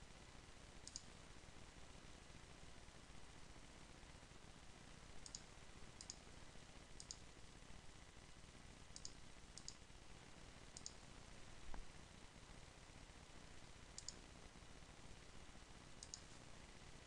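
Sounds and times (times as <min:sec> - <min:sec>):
low hiss: 0:00.0 - 0:17.0
faint computer mouse clicks: 0:00.8 - 0:01.1, 0:05.2 - 0:06.2, 0:07.0 - 0:07.2, 0:09.0 - 0:09.8, 0:10.8 - 0:11.0, 0:14.0 - 0:14.2, 0:16.0 - 0:16.4.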